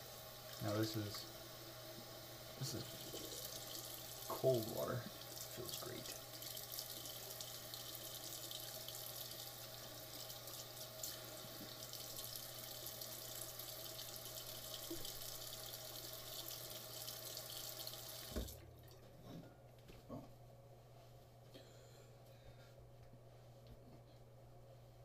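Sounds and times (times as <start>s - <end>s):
tap water running: 0.0s - 19.0s.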